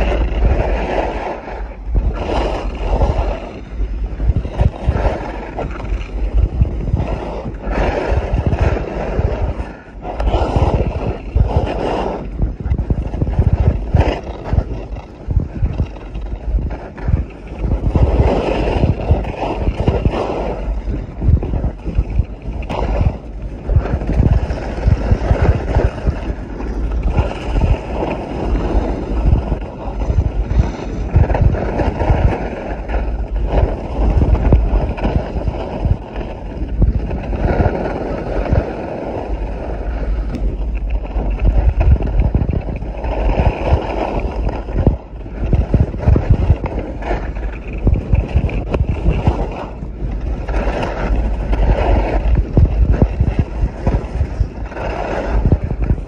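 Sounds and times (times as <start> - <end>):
wind buffeting microphone: 0.0 - 56.0
skis hissing over snow: 7.0 - 12.2.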